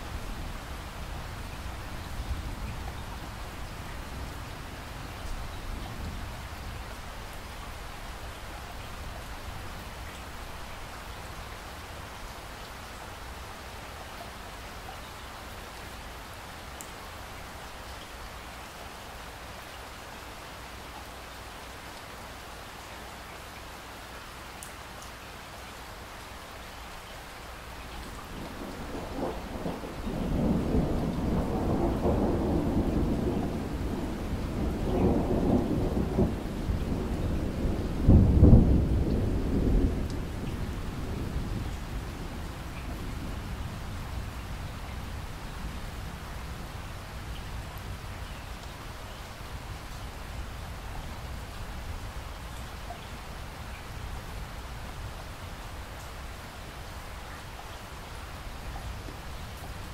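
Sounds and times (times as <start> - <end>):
rain on a window: 0.0 - 59.9
thunder rumbling: 28.2 - 46.7.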